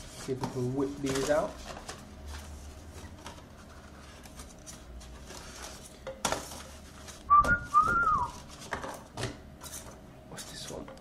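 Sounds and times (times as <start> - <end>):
plastic packaging rustling: 0.0 - 10.0
person whistling: 7.3 - 8.4.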